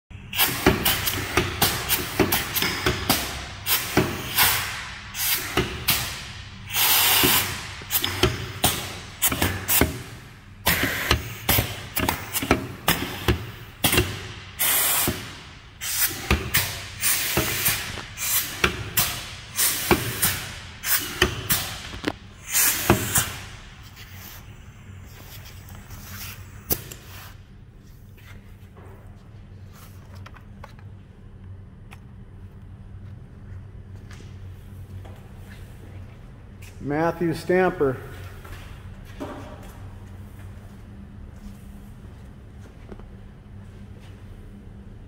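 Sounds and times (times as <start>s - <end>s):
compressed air hissing: 3.2s - 21.8s, 22.4s - 24.5s.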